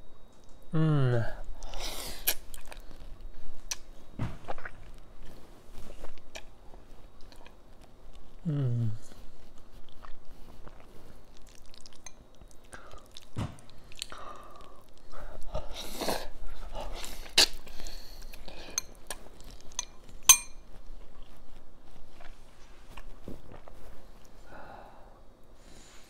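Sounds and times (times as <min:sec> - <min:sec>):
wet chewing: 0:01.6 - 0:24.4
metal fork clinking glass bowl: 0:19.7 - 0:20.6.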